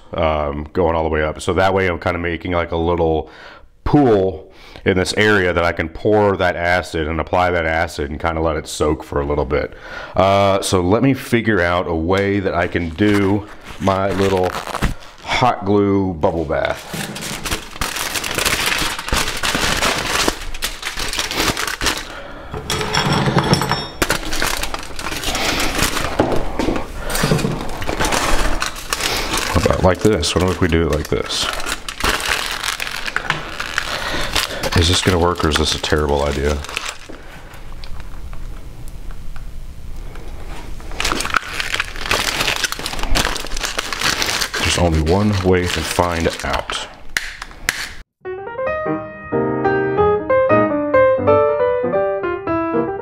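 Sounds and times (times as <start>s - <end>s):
aluminium foil crinkling: 12.6s - 15.4s, 16.4s - 22.4s, 24.0s - 38.6s, 40.5s - 48.0s.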